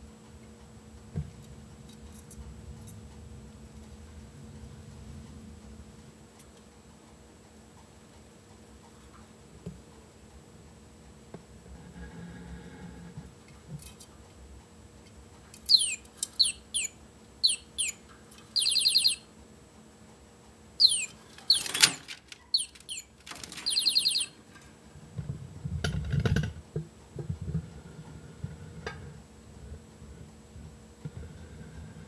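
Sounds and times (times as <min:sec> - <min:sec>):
budgerigar chirps and chattering: 0:15.7 - 0:19.2, 0:20.8 - 0:21.9, 0:22.5 - 0:24.4.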